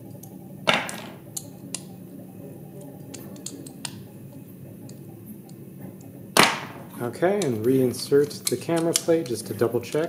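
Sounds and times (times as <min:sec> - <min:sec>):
light clicks of tool and metal: 0:07.4 - 0:10.0.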